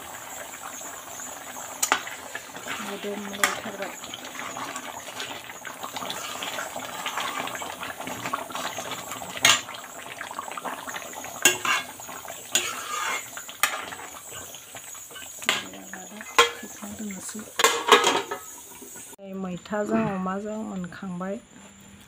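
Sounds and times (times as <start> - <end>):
metal ladle stirring gravy: 10.6 - 16.8
ladle clanking against pan: 11.4 - 16.8, 17.5 - 18.5.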